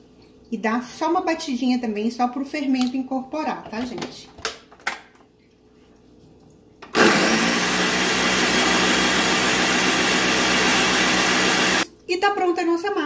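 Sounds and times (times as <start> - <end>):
blender running: 6.9 - 11.9.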